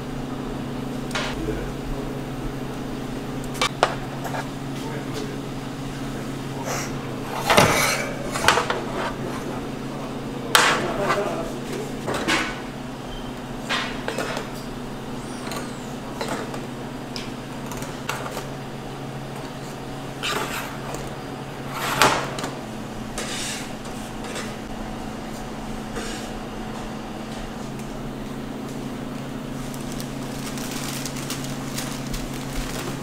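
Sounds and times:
appliance hum: 0.0s - 33.0s
kitchen utensils clattering: 6.6s - 9.8s.

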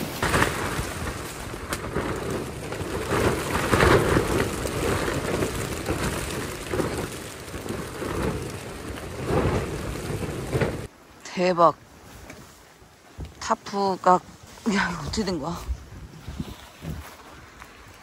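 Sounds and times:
rain on tent fabric: 0.0s - 18.0s
wind gusting against tent: 0.0s - 18.0s.

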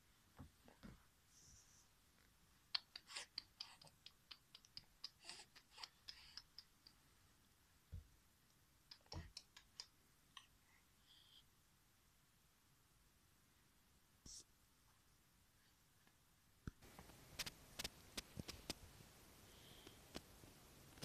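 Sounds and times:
faint small clicks and ticks: 8.5s - 10.5s.

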